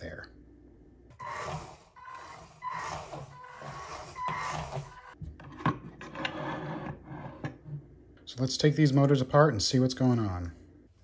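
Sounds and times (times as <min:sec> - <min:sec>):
robot drive motors whining: 0:01.1 - 0:05.2.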